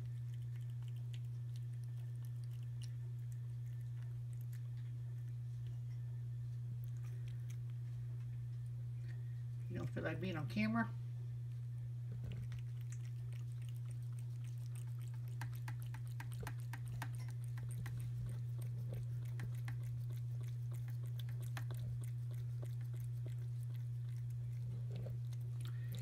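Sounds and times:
cat chewing wet food: 0:00.0 - 0:10.0, 0:11.1 - 0:26.0
steady low hum: 0:00.0 - 0:26.0.

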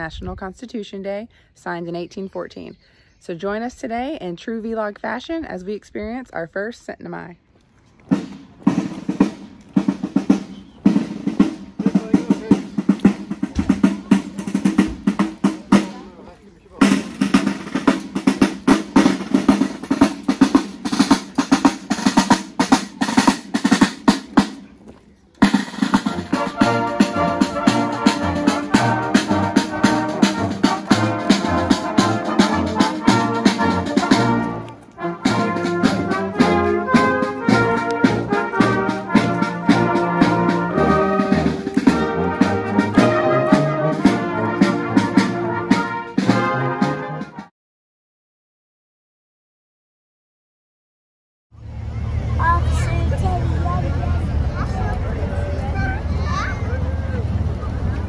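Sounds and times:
snare drums marching cadence: 0:08.0 - 0:47.5
brass band playing a march: 0:08.1 - 0:16.2, 0:16.8 - 0:24.6, 0:25.4 - 0:47.5.

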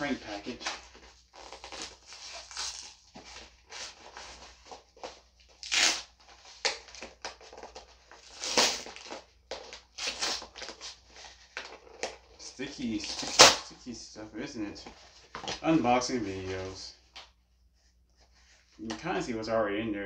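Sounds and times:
cardboard ripping and crinkling: 0:00.3 - 0:12.2, 0:13.0 - 0:13.6.

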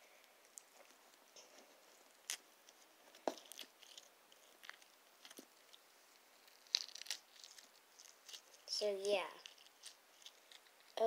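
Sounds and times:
dry slime crackling: 0:00.0 - 0:11.0.

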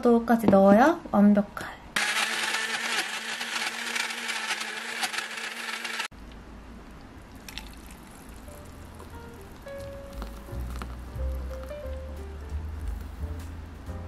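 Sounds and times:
blender whirring: 0:02.0 - 0:06.1
smoothie pouring into a mug: 0:07.3 - 0:11.0.

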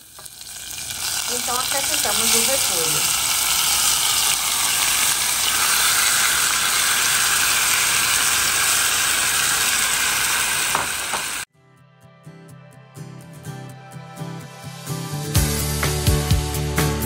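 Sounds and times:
food sizzling in a pan: 0:00.0 - 0:11.5.

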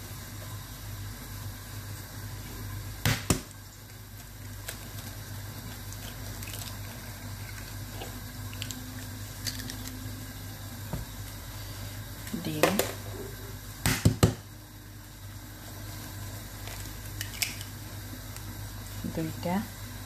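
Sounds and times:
steady low hum: 0:00.0 - 0:20.0
egg cracking into a bowl: 0:08.5 - 0:10.0, 0:17.2 - 0:17.8.

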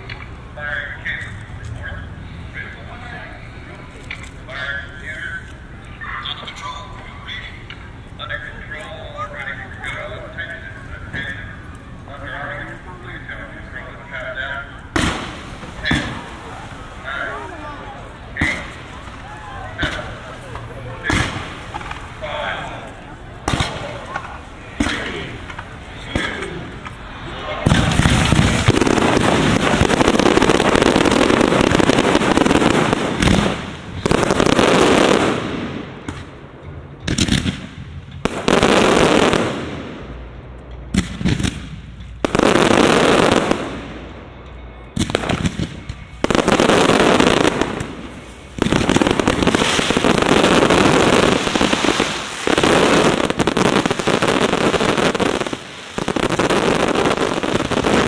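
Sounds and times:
firework shell bursts and crackle: 0:14.9 - 0:16.8, 0:23.4 - 0:44.2, 0:44.9 - 0:58.0.

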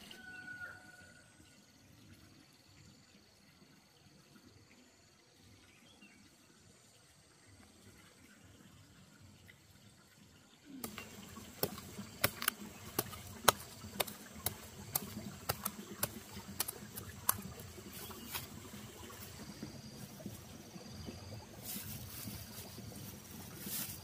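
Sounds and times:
machete chopping into soil: 0:10.8 - 0:18.5
soft rustling in straw: 0:21.4 - 0:24.0.

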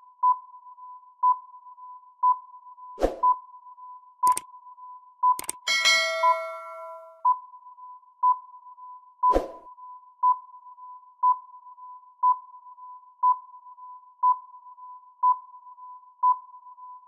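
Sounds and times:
timer beeps: 0:01.2 - 0:02.6, 0:04.2 - 0:04.5, 0:05.2 - 0:07.4, 0:15.2 - 0:17.0
brief swish: 0:03.0 - 0:03.2, 0:09.3 - 0:09.6.

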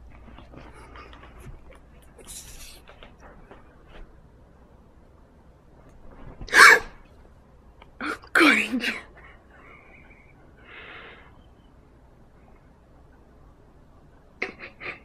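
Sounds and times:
loud sneezes: 0:06.5 - 0:07.0
quiet breathy sound: 0:08.8 - 0:15.0.

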